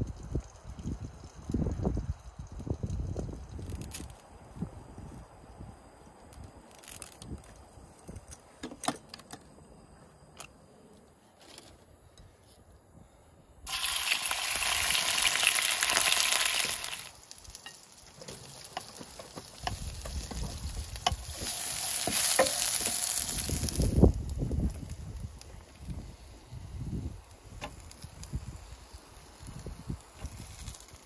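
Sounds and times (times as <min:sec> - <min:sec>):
chicken sizzling in hot oil: 0:13.7 - 0:31.0.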